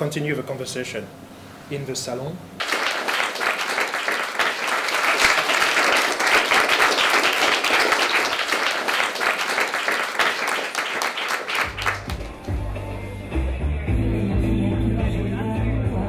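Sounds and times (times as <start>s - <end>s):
audience applauding: 2.6s - 12.7s
music: 11.7s - 16.0s.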